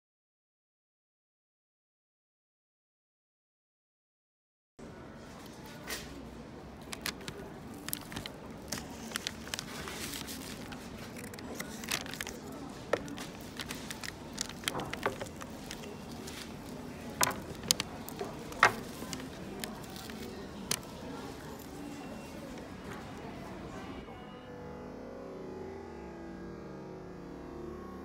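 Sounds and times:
paper cup crinkling: 0:06.8 - 0:23.5
plastic fork cutting food: 0:06.9 - 0:21.2.

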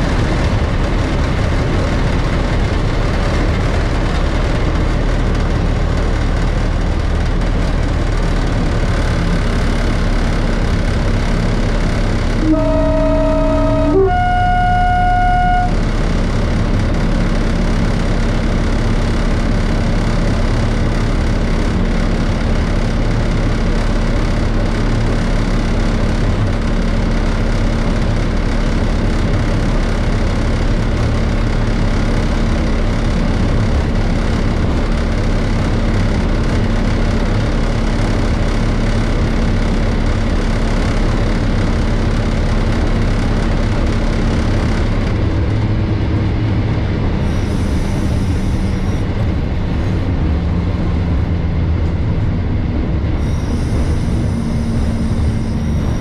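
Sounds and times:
diesel engine running: 0:00.0 - 0:56.0
two-tone locomotive horn: 0:12.3 - 0:16.6, 0:47.2 - 0:49.1, 0:53.2 - 0:56.0.

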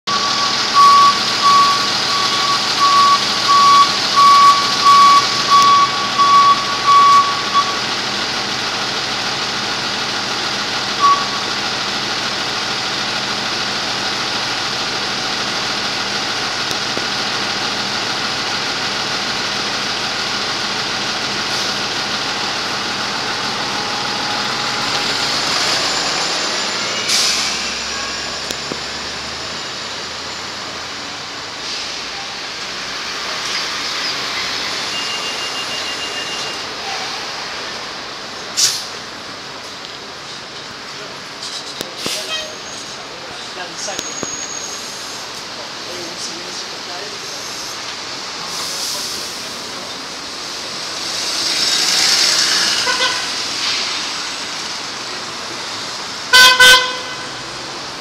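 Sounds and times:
warning beeper: 0:00.1 - 0:07.9, 0:11.0 - 0:11.6, 0:23.3 - 0:30.7, 0:34.7 - 0:36.7
bus engine running: 0:00.1 - 0:58.0
short sharp air hiss: 0:38.6 - 0:38.9.

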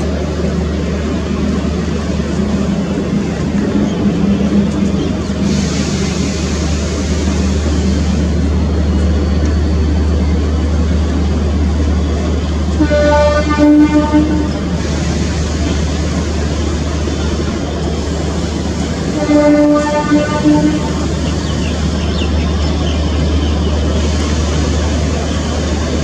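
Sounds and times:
diesel locomotive engine rumble: 0:00.0 - 0:26.0
locomotive air horn blast: 0:12.7 - 0:14.7, 0:19.0 - 0:21.1.

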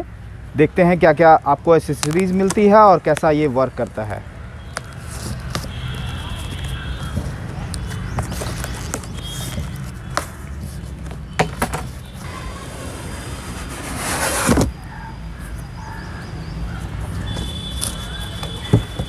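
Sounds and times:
cardboard flaps and tape crackling: 0:04.8 - 0:12.3, 0:13.1 - 0:14.8
cardboard scraping: 0:04.8 - 0:14.8.

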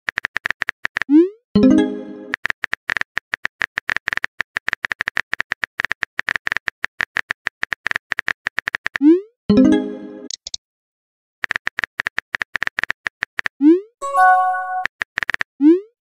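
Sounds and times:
chime-like alert tone: 0:01.6 - 0:02.3, 0:14.0 - 0:14.8.

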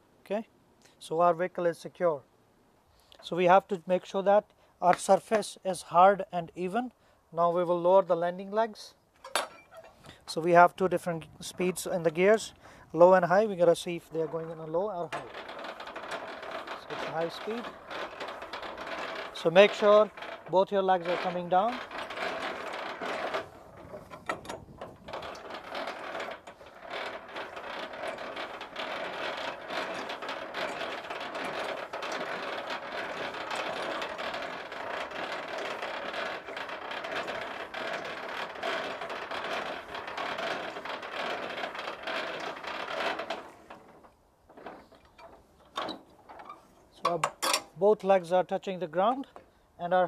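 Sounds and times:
crank gearbox clicking and grinding: 0:13.2 - 0:48.2.

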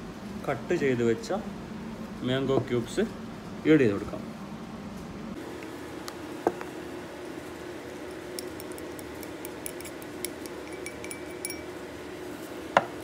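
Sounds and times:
steady low hum: 0:00.0 - 0:13.0
utensil clinking against glass: 0:08.3 - 0:11.8.

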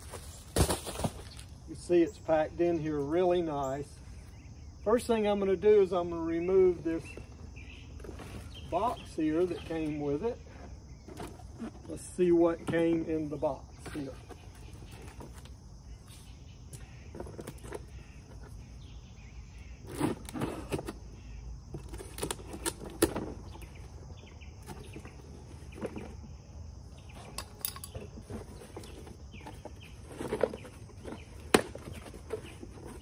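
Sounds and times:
steady background hiss: 0:00.0 - 0:17.2.

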